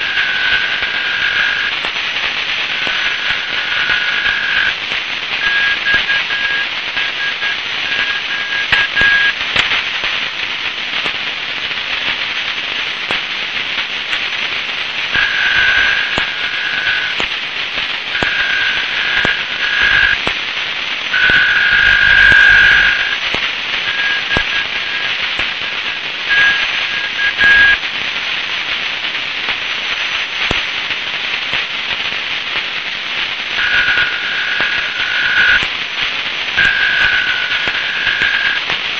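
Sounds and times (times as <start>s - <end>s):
two-tone data signal: 0.0s - 2.0s, 2.6s - 9.4s, 14.9s - 20.4s, 21.1s - 27.8s, 33.5s - 35.7s, 36.5s - 38.7s
shortwave static hiss: 0.0s - 38.9s
static crackles: 0.0s - 38.9s.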